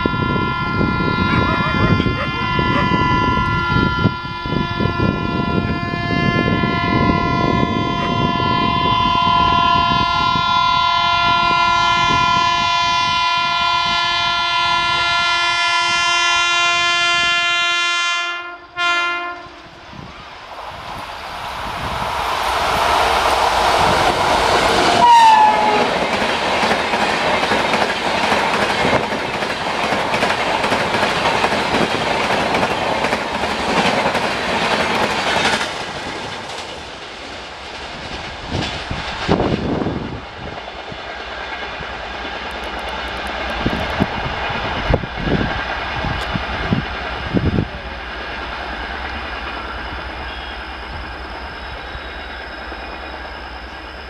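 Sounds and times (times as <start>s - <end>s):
train horn blast: 0.0s - 19.8s, 23.0s - 26.1s, 50.2s - 50.9s
train passing at speed: 0.0s - 54.0s
wheels clickety-clack on rails: 23.2s - 49.7s.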